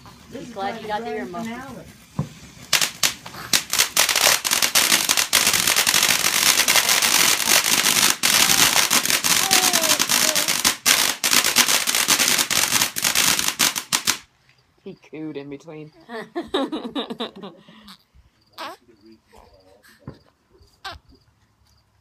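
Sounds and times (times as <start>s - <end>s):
fireworks crackling pops: 0.0s - 14.3s.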